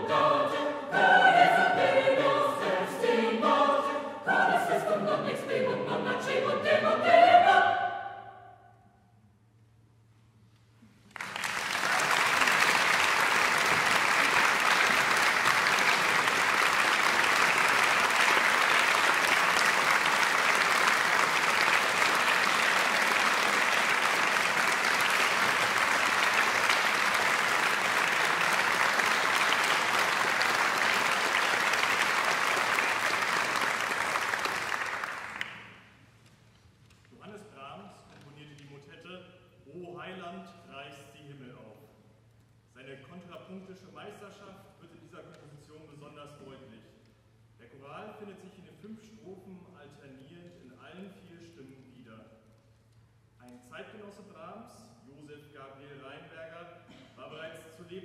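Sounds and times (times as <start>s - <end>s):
audience applause: 11.1s - 35.8s.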